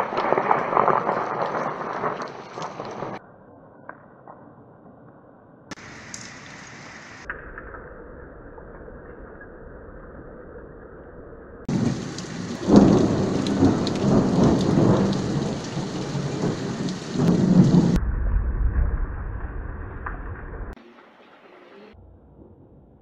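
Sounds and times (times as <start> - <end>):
heavy rain: 0.0 - 3.2, 5.7 - 7.3, 11.7 - 22.0
thunder crash rumbling: 0.0 - 3.2, 11.6 - 20.8.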